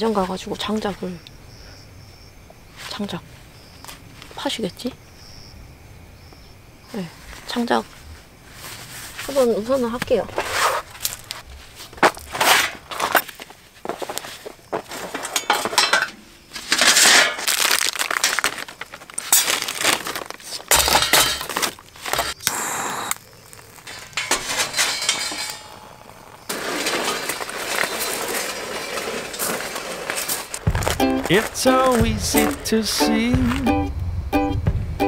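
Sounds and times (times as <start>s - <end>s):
charcoal clinking into metal chimney: 14.8s - 18.6s, 19.2s - 33.6s
steady noise: 22.1s - 27.1s, 30.4s - 35.0s.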